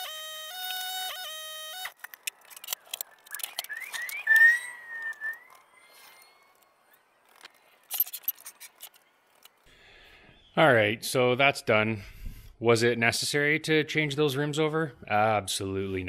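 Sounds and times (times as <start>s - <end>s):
short squeaks: 0.0s - 9.6s.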